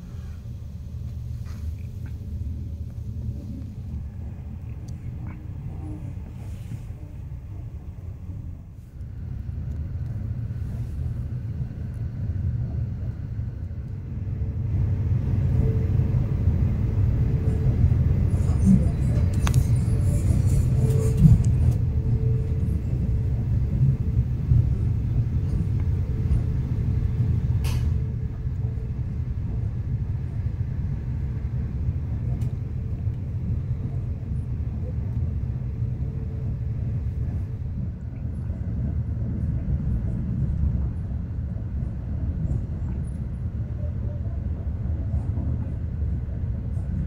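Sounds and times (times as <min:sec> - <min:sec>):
train wheels rumbling on rail: 0:00.0 - 0:47.0.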